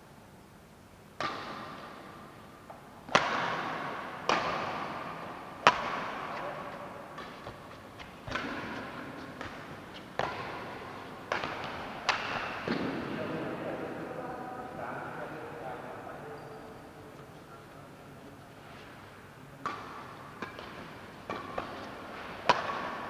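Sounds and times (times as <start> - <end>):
racket striking shuttlecock: 1.2 - 2.1, 3.1 - 13.0, 19.6 - 23.0
ringing echo in hall: 8.2 - 18.4.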